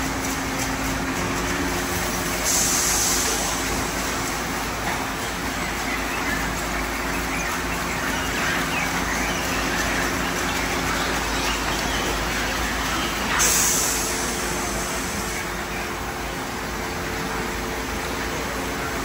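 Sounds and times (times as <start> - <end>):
spray hiss: 2.3 - 4.7, 13.3 - 15.7.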